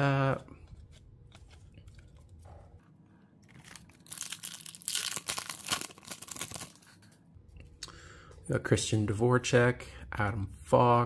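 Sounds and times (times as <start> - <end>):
wrapper crinkling and tearing: 3.4 - 7.0.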